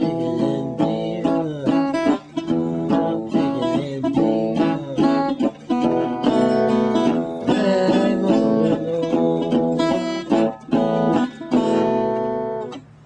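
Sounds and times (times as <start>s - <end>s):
resonator guitar blues: 0.0s - 13.0s.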